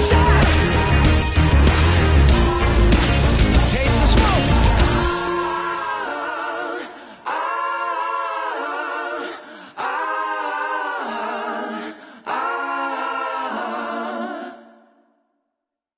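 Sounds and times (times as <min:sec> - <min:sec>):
person singing long held phrases: 0:00.0 - 0:01.0, 0:03.7 - 0:14.8.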